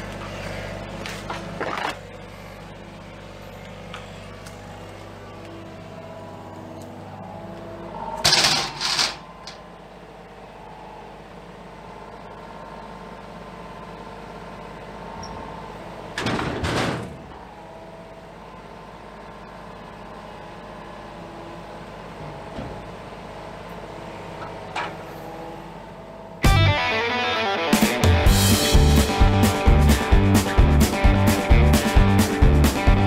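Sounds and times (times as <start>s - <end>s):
hydraulics working: 0.0s - 26.4s
diesel engine running: 0.0s - 33.0s.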